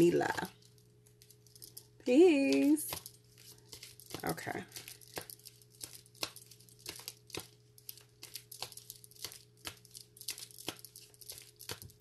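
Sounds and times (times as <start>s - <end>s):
faint steady hum: 0.0s - 12.0s
cards being shuffled: 2.4s - 12.0s.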